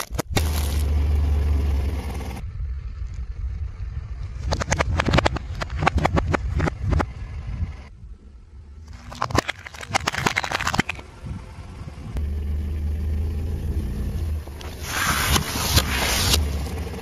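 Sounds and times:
car engine idling: 0:00.4 - 0:17.0
packets crunching and squishing: 0:08.9 - 0:11.0
plastic cups cracking under tyre: 0:08.9 - 0:11.0.

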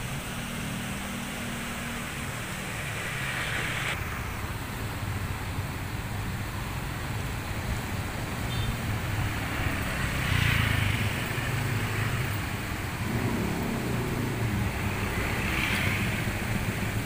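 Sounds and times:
rushing floodwater: 0:00.0 - 0:17.0.

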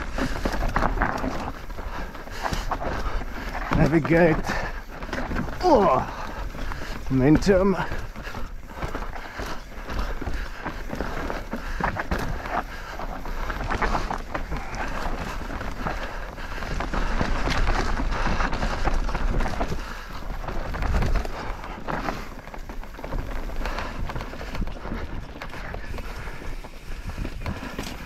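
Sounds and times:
bike knocking and rattling: 0:00.0 - 0:28.0
bike tyres rolling over rock: 0:00.0 - 0:28.0.

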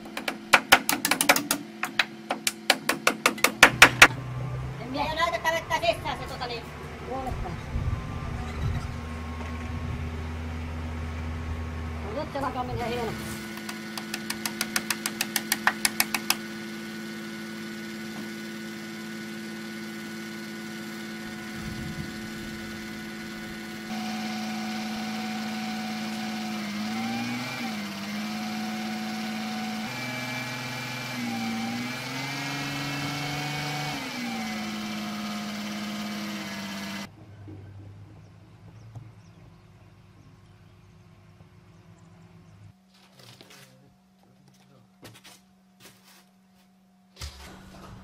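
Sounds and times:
loud rapid knocks: 0:00.0 - 0:04.1
crane engine running: 0:01.4 - 0:42.8.

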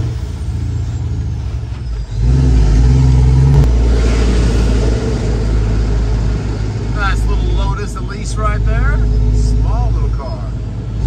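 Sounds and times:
truck engine accelerating: 0:00.0 - 0:11.0.

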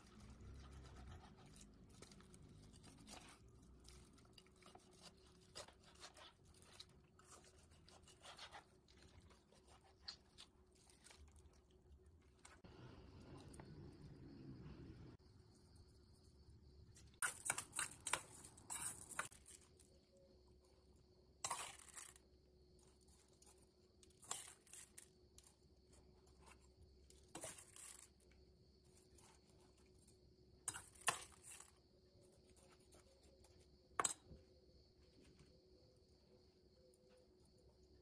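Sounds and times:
spoon stirring rice in bowl: 0:00.0 - 0:11.6.

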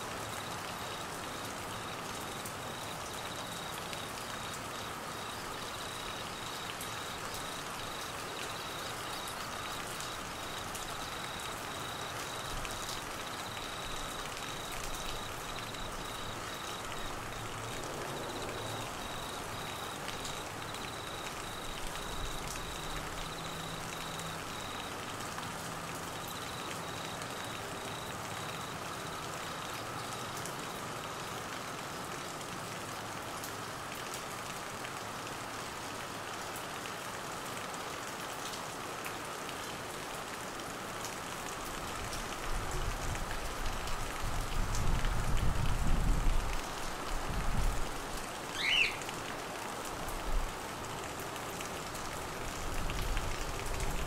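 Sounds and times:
heavy rain on trees and grass: 0:00.0 - 0:54.0
crickets chirping: 0:00.1 - 0:25.1, 0:26.1 - 0:30.8, 0:48.6 - 0:49.1.

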